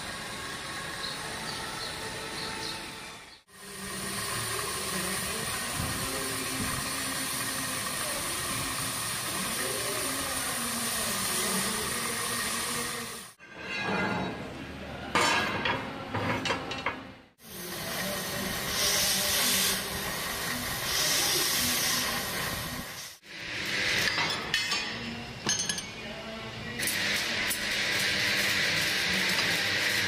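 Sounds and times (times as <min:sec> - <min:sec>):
cutting torch hissing: 0:00.0 - 0:13.4, 0:17.4 - 0:24.2, 0:26.8 - 0:30.0.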